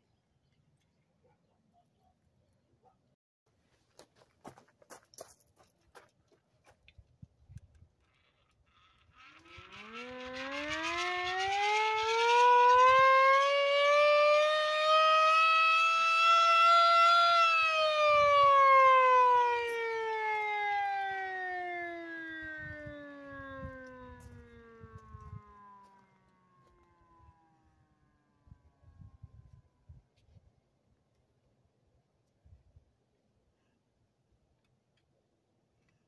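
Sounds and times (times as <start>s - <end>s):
rattling whir: 8.1s - 13.5s
hand-cranked siren wailing: 8.9s - 27.8s.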